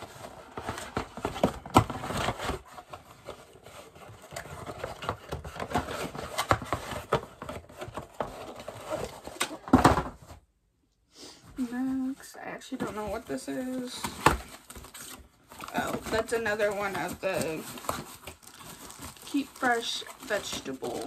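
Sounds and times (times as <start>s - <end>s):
clatter of items: 0.0s - 10.4s, 11.6s - 21.0s
packaging rustling and crinkling: 0.0s - 10.4s, 11.5s - 21.0s
items knocking and clicking: 0.1s - 10.4s.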